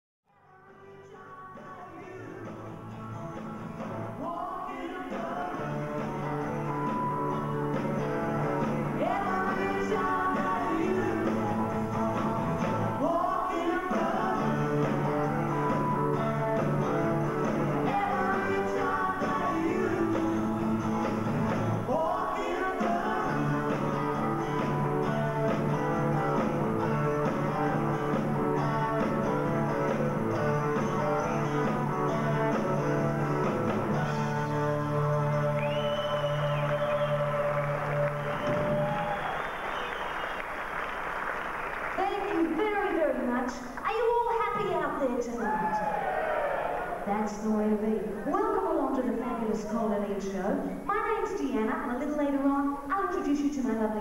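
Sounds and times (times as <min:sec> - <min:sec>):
guitar: 0:00.3 - 0:54.0
live rock and roll band: 0:01.4 - 0:47.3
bass notes: 0:05.3 - 0:39.3
woman singing into microphone: 0:09.0 - 0:11.4, 0:17.8 - 0:20.2.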